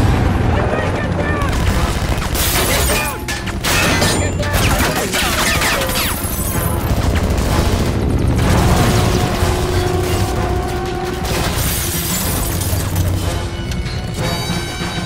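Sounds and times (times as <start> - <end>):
helicopter drone: 0.0 - 2.4, 4.3 - 11.4
rapid gunfire: 0.0 - 13.1.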